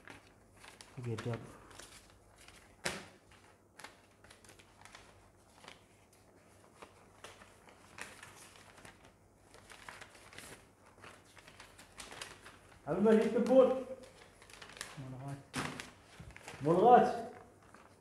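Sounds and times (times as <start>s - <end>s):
paper rustling and clicking: 0.0s - 18.0s
sharp paper snap: 2.4s - 5.0s, 13.1s - 16.7s.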